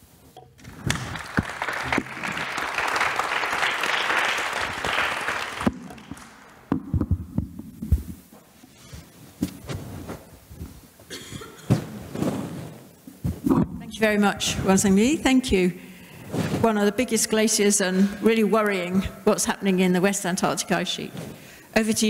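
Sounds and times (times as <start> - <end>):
audience applauding: 0.6 - 6.7.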